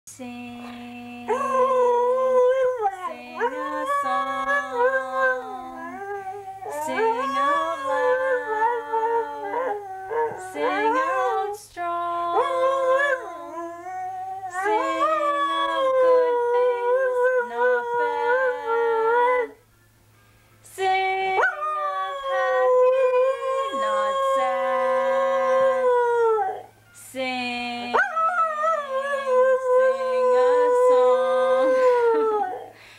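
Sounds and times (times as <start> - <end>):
dog howling: 1.3 - 11.6.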